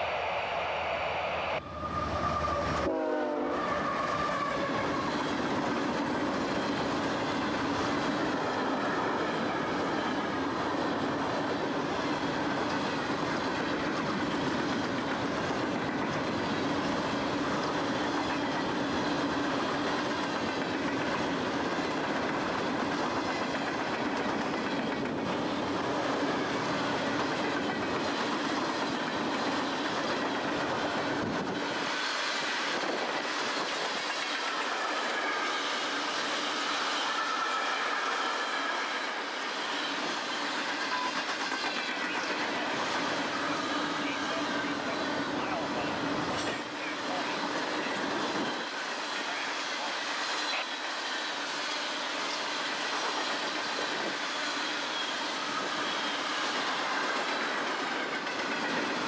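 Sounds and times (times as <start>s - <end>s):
low drone: 0.0s - 2.9s
train wheels rumbling on rails: 1.6s - 59.0s.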